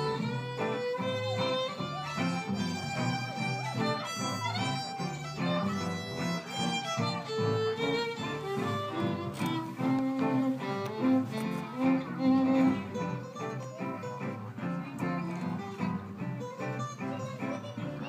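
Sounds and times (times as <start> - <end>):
acoustic guitar: 0.0 - 18.0
fiddle melody: 0.0 - 18.0
upright double bass: 0.0 - 18.0.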